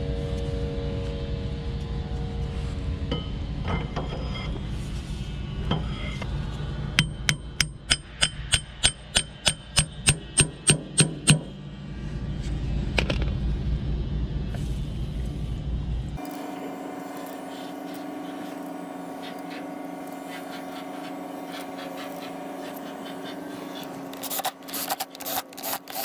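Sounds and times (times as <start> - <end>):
low hum: 0.0 - 26.0
hammer striking metal: 7.0 - 11.6.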